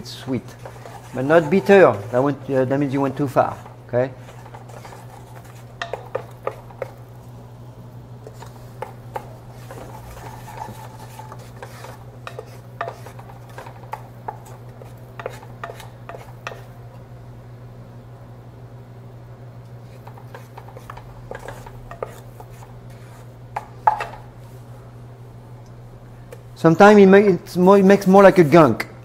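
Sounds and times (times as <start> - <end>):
wooden spatula scraping saucepan: 0.1 - 7.2, 8.2 - 16.8, 19.8 - 24.3.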